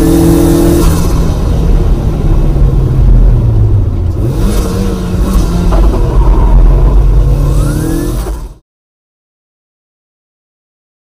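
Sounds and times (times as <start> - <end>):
car engine from inside cabin: 0.0 - 8.6.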